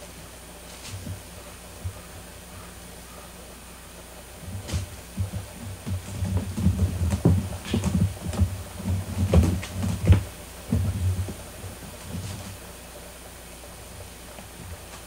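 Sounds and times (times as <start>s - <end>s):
kitten scratching a basket: 4.4s - 12.7s.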